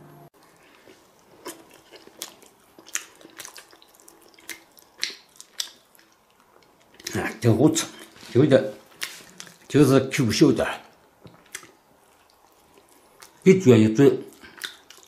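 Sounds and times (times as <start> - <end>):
man chewing with lip smacks: 0.4 - 7.2, 8.8 - 9.7, 10.9 - 13.5, 14.3 - 15.0.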